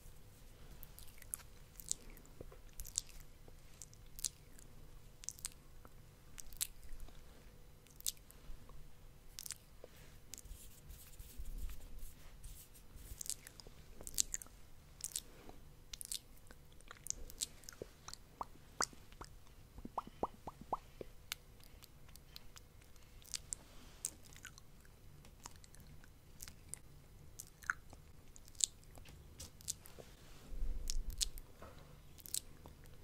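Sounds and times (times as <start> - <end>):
wet mouth clicks and smacks: 2.7 - 3.2, 5.2 - 5.6, 16.8 - 22.7.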